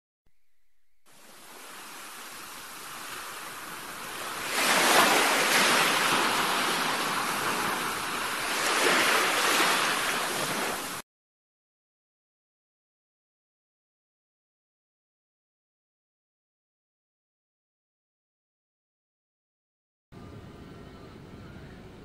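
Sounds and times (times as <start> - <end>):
ocean waves breaking: 1.1 - 11.0.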